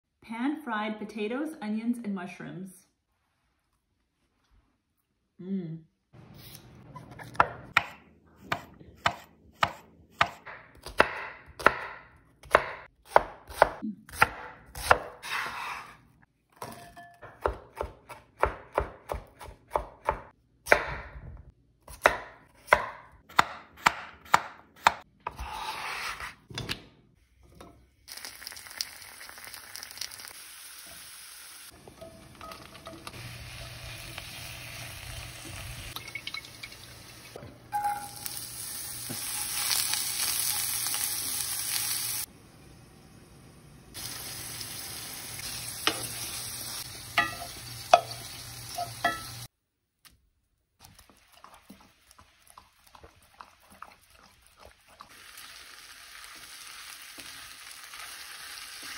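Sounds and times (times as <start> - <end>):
knife chopping on wooden board: 7.2 - 15.8, 17.3 - 21.2, 21.9 - 25.6
mushrooms sizzling in skillet: 28.1 - 49.5, 55.1 - 58.9
spatula stirring in skillet: 50.8 - 55.5.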